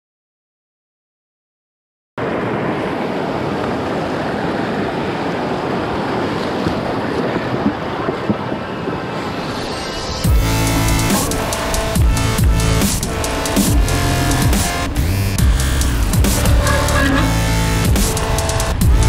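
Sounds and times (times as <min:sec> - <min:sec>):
music: 0:09.2 - 0:19.0.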